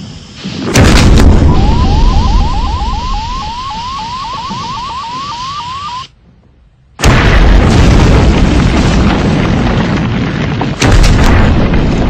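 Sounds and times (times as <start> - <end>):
loud explosion with heavy rumble: 0.4 - 5.0, 7.0 - 12.0.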